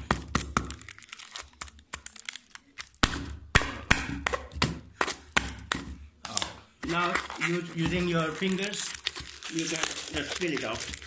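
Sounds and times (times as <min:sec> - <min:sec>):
plastic wrapping crinkling: 0:00.0 - 0:03.4, 0:06.3 - 0:11.0.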